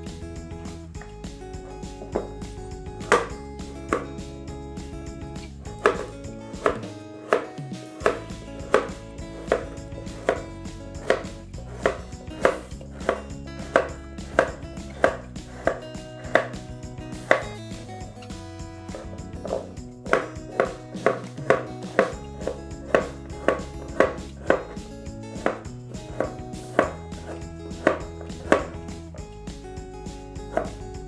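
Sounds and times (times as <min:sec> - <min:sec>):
knife chopping on cutting board: 0:03.0 - 0:03.3, 0:03.9 - 0:04.1, 0:05.8 - 0:17.6, 0:18.9 - 0:29.0, 0:30.5 - 0:30.8.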